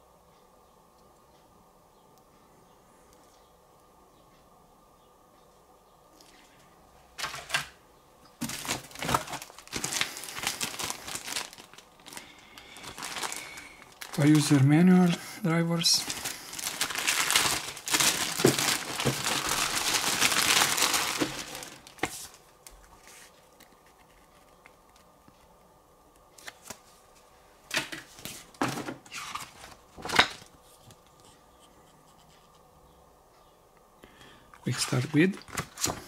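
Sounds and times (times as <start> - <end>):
papers rustling: 7.2 - 7.8, 8.4 - 15.2, 15.8 - 25.5, 26.4 - 31.2, 34.6 - 36.0
packaging tearing and crinkling: 8.4 - 15.2, 16.0 - 22.4.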